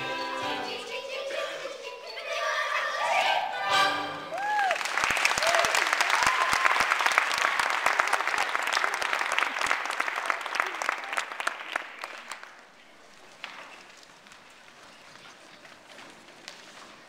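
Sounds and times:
audience clapping: 4.3s - 15.0s.

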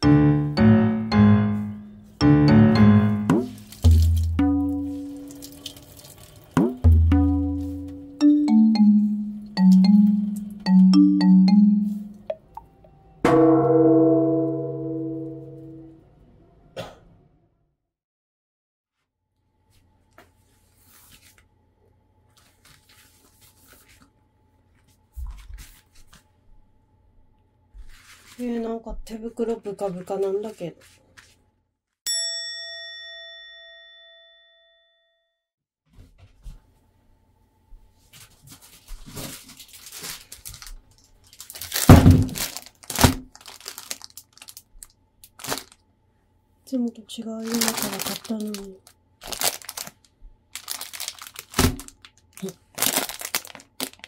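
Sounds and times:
rubber gloves rustling: 3.4s - 6.4s, 22.2s - 26.3s, 38.1s - 45.8s, 47.4s - 54.0s
plastic packaging crinkling: 3.4s - 6.6s, 38.2s - 45.8s, 47.4s - 54.0s.

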